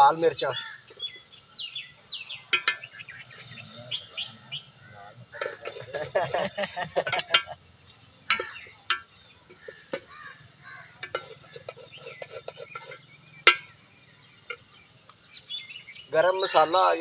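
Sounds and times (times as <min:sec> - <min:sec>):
metal spoon clinking on pot: 0:02.4 - 0:03.0, 0:05.4 - 0:06.4, 0:07.0 - 0:07.6, 0:08.3 - 0:10.1, 0:11.0 - 0:13.8.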